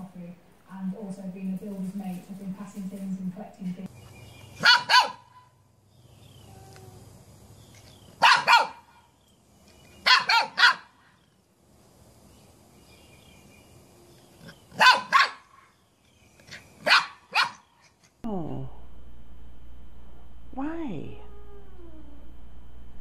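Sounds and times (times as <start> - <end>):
dog barking: 4.6 - 5.5, 8.2 - 9.1, 10.0 - 11.0, 14.7 - 15.7, 16.8 - 17.7.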